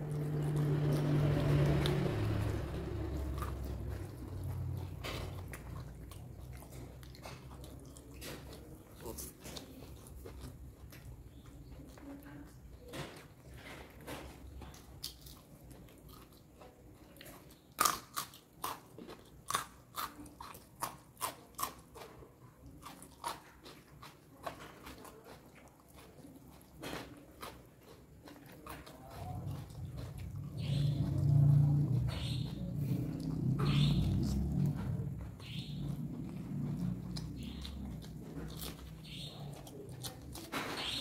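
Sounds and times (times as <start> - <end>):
low rumbling: 0.0 - 7.2, 29.3 - 39.6
crunching and chewing vegetables: 0.0 - 41.0.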